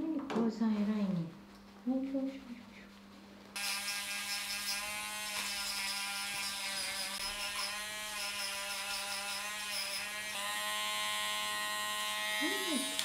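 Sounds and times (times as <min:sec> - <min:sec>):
electric clippers running: 0:03.6 - 0:13.0.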